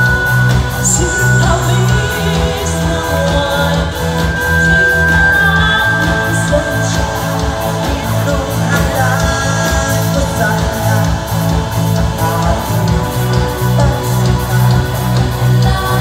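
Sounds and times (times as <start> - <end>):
live rock band playing: 0.0 - 16.0
women singing: 0.8 - 16.0.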